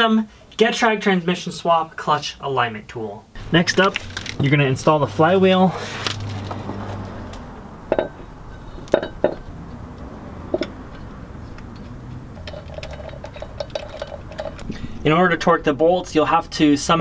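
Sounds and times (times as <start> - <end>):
light metal clinks and taps: 7.9 - 9.5, 10.5 - 14.8.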